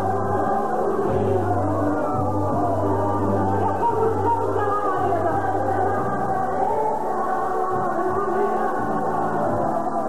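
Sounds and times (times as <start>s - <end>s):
backing music: 0.0s - 10.0s
choir voices: 0.0s - 10.0s.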